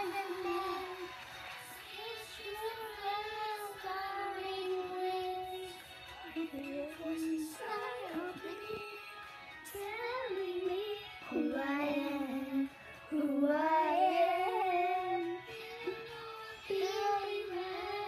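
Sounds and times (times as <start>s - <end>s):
children singing: 0.0s - 1.2s, 10.8s - 18.0s
backing music: 0.0s - 18.0s.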